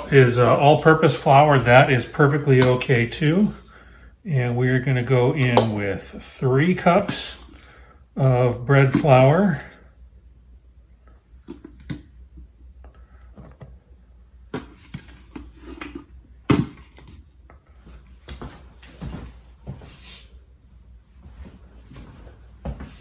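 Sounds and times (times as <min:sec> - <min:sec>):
soft swishes of flour: 0:17.8 - 0:23.0.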